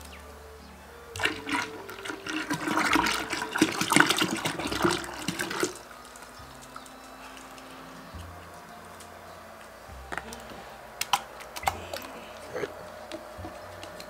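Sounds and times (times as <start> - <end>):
cream pouring into a jar: 1.2 - 6.3.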